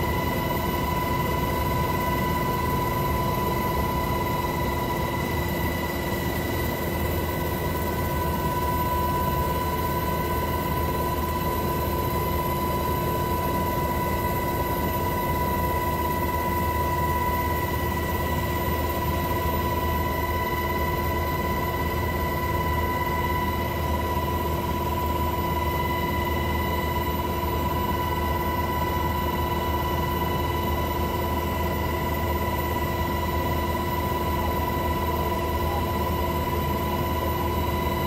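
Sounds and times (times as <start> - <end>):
helicopter rotor and engine rumble: 0.0 - 38.0
high turbine whine: 0.0 - 38.0.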